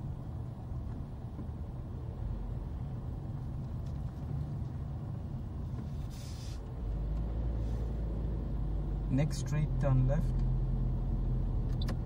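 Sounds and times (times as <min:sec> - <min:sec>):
car engine and tyres rumbling: 0:00.0 - 0:12.0
short hiss: 0:05.9 - 0:06.7.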